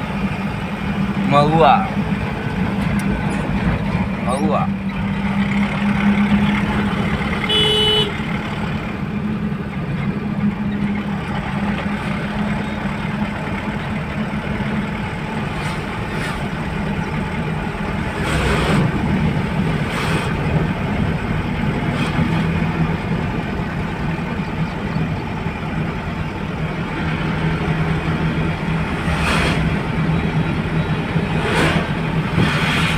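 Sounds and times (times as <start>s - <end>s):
road and tyre noise: 0.0s - 32.9s
truck engine running: 0.0s - 32.9s
vehicles rushing past: 0.0s - 32.9s
vehicle horn toot: 7.4s - 8.3s.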